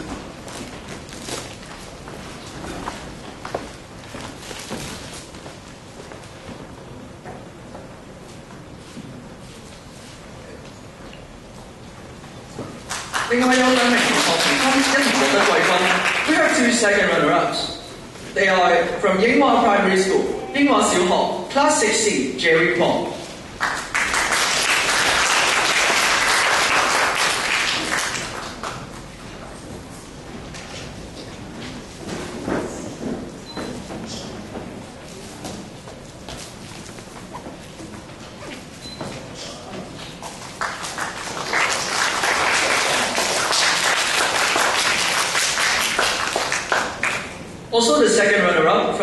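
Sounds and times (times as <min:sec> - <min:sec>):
audience applauding: 0:12.8 - 0:16.9, 0:23.5 - 0:28.9, 0:40.4 - 0:47.4.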